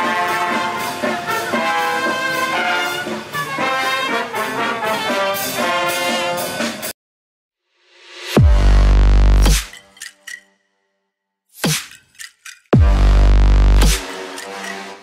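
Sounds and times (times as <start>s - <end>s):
brass band playing: 0.0s - 6.9s
steady beat: 11.6s - 14.8s.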